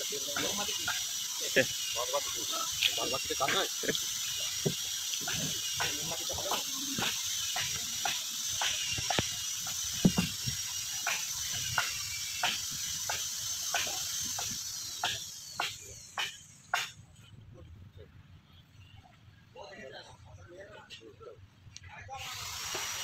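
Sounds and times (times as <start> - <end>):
steady high-pitched hiss: 0.0 - 23.0
tools knocking on wooden hull: 10.0 - 10.6.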